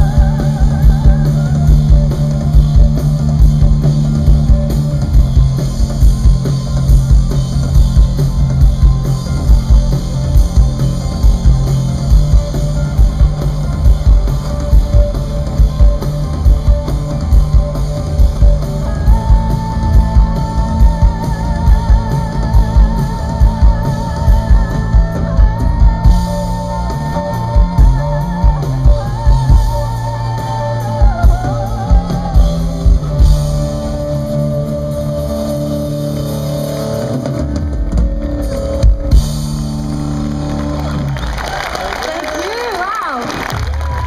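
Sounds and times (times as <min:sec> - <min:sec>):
woman singing with vibrato: 0:00.0 - 0:03.3, 0:18.2 - 0:36.8
bass guitar: 0:00.0 - 0:44.0
drum kit: 0:00.0 - 0:44.0
electric guitar: 0:00.0 - 0:44.0.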